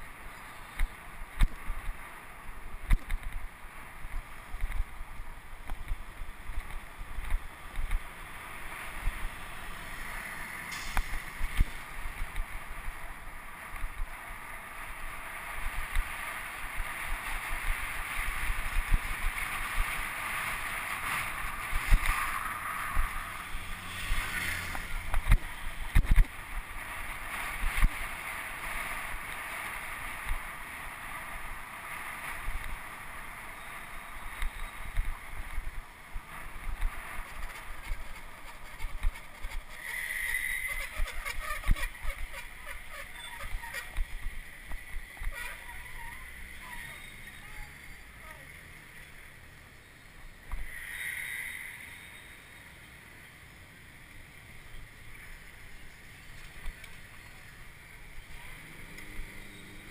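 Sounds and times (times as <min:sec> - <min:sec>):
wind and road noise: 0:00.0 - 0:59.9.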